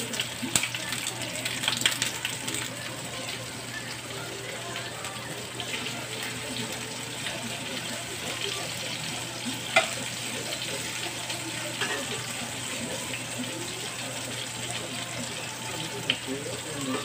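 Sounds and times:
steaks sizzling in a skillet: 0:00.0 - 0:17.0.

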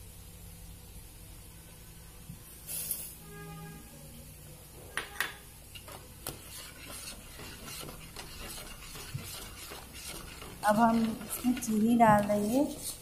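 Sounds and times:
spoon stirring and scraping pan: 0:05.6 - 0:13.0.

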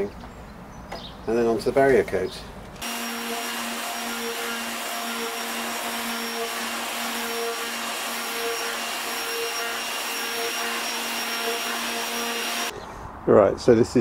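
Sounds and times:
orbital sander motor whine: 0:02.8 - 0:12.7.

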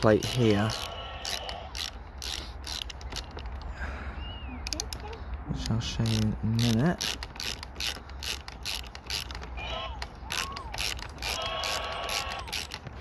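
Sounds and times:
socket ratchet clicking: 0:00.0 - 0:03.7, 0:04.6 - 0:13.0
high squeal-like tones: 0:09.6 - 0:12.6.

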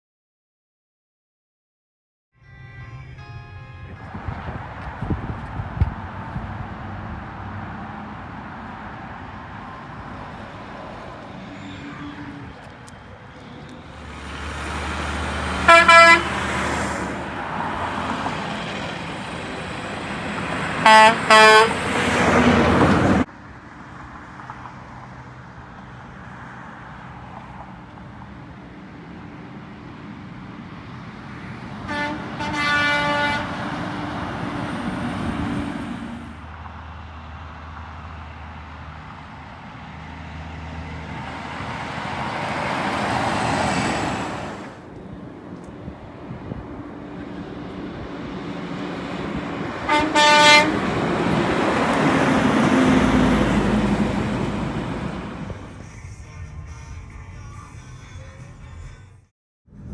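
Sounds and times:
air horn blasts: 0:02.4 - 0:04.7, 0:11.3 - 0:12.6, 0:15.5 - 0:16.6, 0:20.8 - 0:21.9, 0:31.8 - 0:33.6, 0:49.8 - 0:50.8
trucks driving past: 0:02.4 - 0:59.9.

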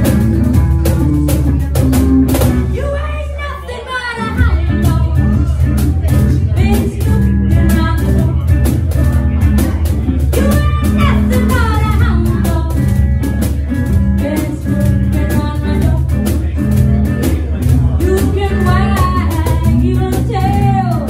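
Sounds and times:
cajon hand drum beat: 0:00.0 - 0:03.0, 0:04.2 - 0:21.0
electric guitar: 0:00.0 - 0:03.0, 0:04.1 - 0:21.0
woman singing through microphone: 0:02.6 - 0:08.7, 0:10.3 - 0:13.1, 0:14.1 - 0:16.4, 0:18.0 - 0:21.0.

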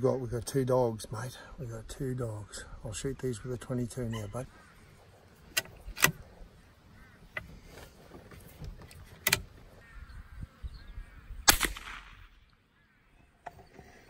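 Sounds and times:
rifle shots: 0:11.4 - 0:12.4
gunshot echo: 0:11.4 - 0:12.5.

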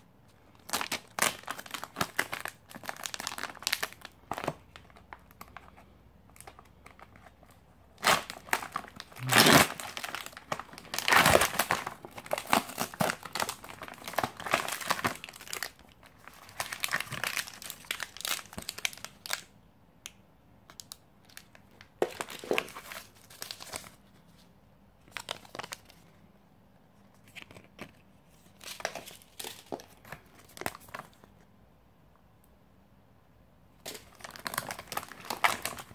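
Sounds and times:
foil and plastic packaging crinkling: 0:00.5 - 0:19.5, 0:21.3 - 0:24.0, 0:33.8 - 0:35.9.

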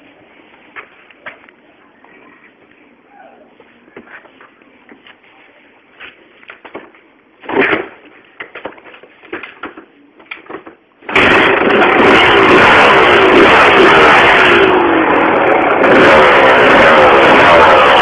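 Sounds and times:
engine starting and revving: 0:11.0 - 0:18.0.

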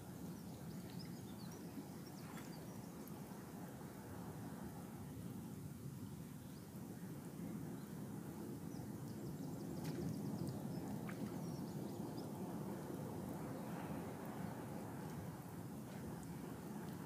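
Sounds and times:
faint high ticks and chirps: 0:00.0 - 0:03.7, 0:08.6 - 0:17.0.

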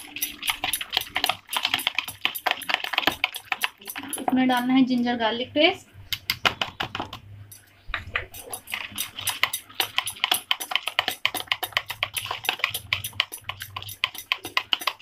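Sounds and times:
wire whisk clicking against bowl: 0:08.4 - 0:15.0.

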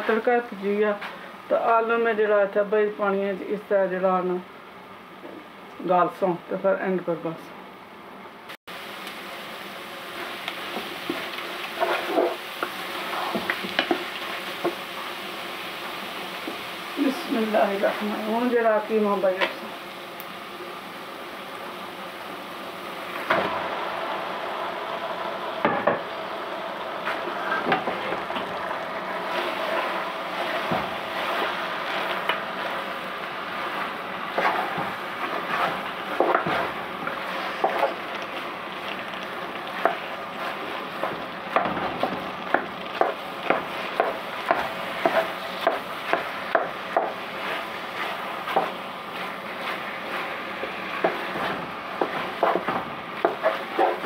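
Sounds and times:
meat sizzling in hot oil: 0:08.7 - 0:54.0
spatula scraping and knocking pot: 0:10.7 - 0:14.0, 0:33.7 - 0:38.0, 0:39.6 - 0:54.0.

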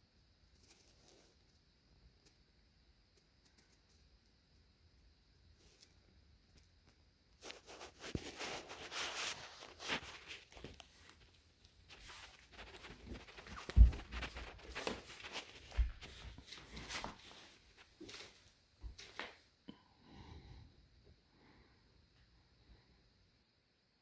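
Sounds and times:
rustling and rubbing: 0:07.3 - 0:19.2.

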